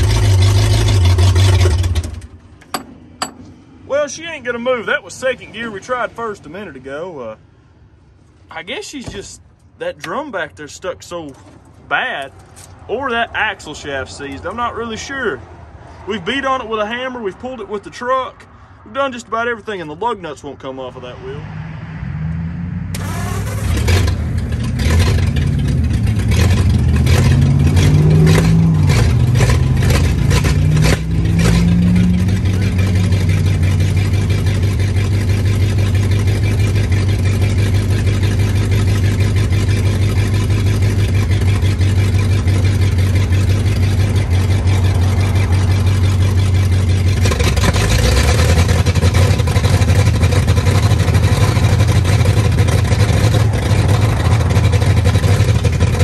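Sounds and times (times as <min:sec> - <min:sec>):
truck engine running: 0:22.9 - 0:56.0.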